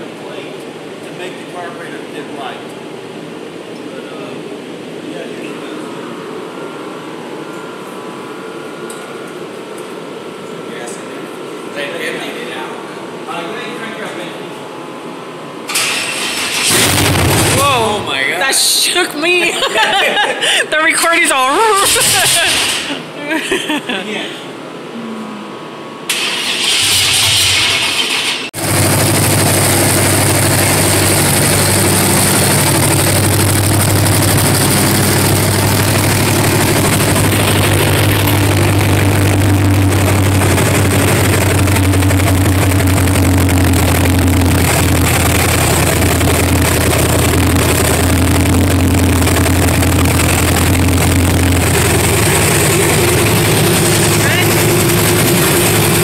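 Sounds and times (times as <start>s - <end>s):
pickup truck engine running: 16.4s - 18.2s, 26.6s - 56.0s.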